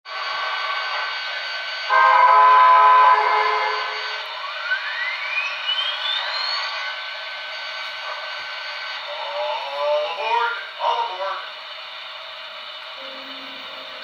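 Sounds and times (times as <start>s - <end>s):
model locomotive engine hum: 0.1s - 14.0s
turbo-generator whine: 0.1s - 14.0s
steam whistle blast: 1.8s - 6.8s.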